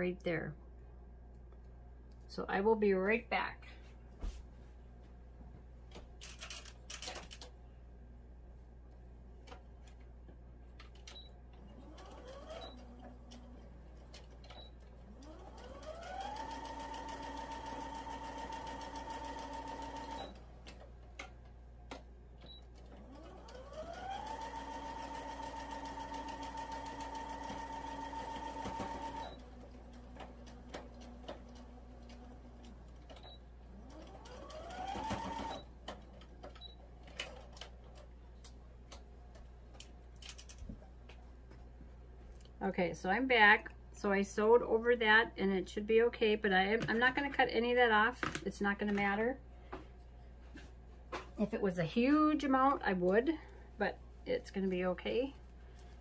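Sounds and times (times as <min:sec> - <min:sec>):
sewing machine motor whining: 0:11.7 - 0:13.5, 0:23.0 - 0:32.8, 0:33.8 - 0:35.7.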